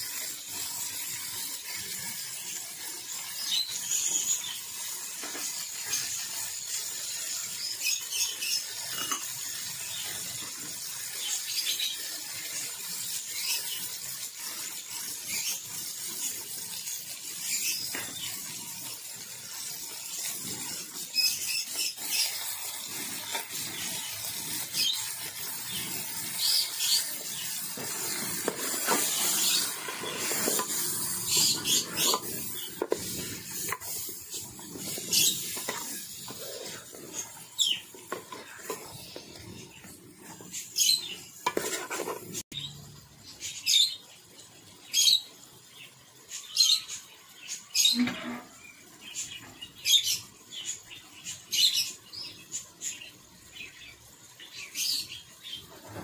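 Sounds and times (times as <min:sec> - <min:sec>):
meat sizzling in a pot: 0:00.0 - 0:56.0
spoon scraping and stirring: 0:08.9 - 0:09.4, 0:22.0 - 0:42.4.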